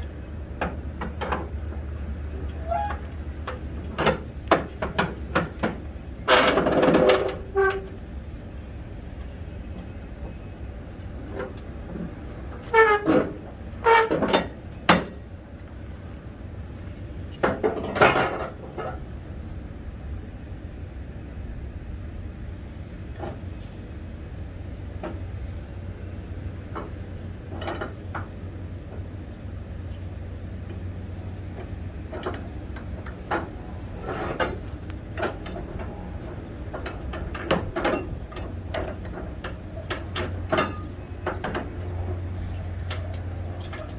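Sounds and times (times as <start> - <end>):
steady low rumble: 0.0 - 43.9
metal hardware clanking: 12.5 - 15.3, 34.2 - 41.9.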